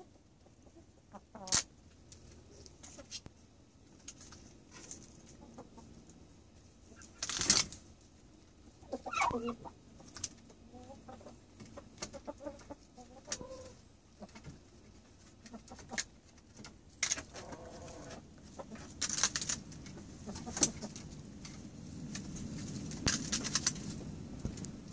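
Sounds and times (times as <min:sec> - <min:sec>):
chickens clucking: 0:00.0 - 0:07.8, 0:08.6 - 0:21.6
chickens pecking and scratching: 0:00.0 - 0:24.9
chicken drawn-out call: 0:08.8 - 0:09.8, 0:12.2 - 0:13.8, 0:17.3 - 0:18.8.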